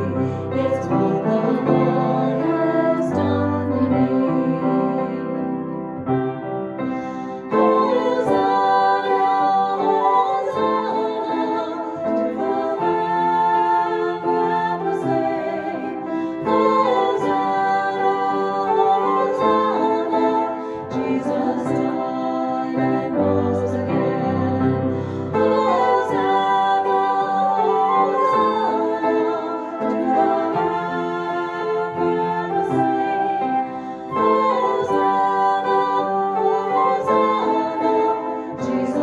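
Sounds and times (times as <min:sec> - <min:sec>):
flute: 0:00.0 - 0:39.0
piano: 0:00.0 - 0:39.0
woman singing: 0:25.4 - 0:39.0.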